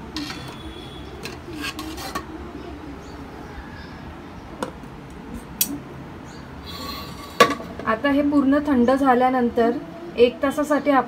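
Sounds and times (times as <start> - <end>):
metal bowl clinking and knocking: 0.1 - 0.6.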